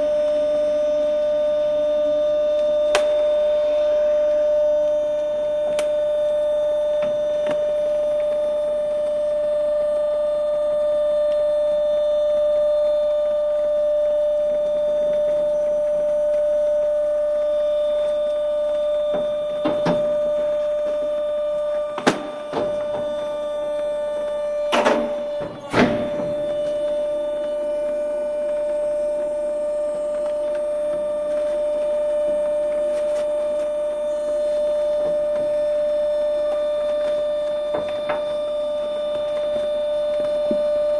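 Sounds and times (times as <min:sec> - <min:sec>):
trash compactor motor hum: 0:00.0 - 0:40.9
sharp knocks and cracks: 0:22.0 - 0:23.2.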